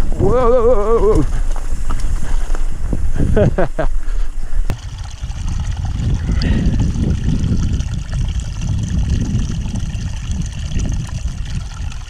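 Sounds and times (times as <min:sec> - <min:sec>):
low rumbling noise: 0:00.0 - 0:12.0
person drinking from a spring: 0:03.9 - 0:12.0
water trickling: 0:04.7 - 0:12.0.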